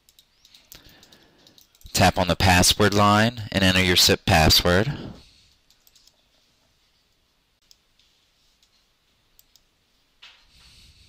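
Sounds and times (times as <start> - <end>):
faint computer keyboard clicks: 9.4 - 9.7.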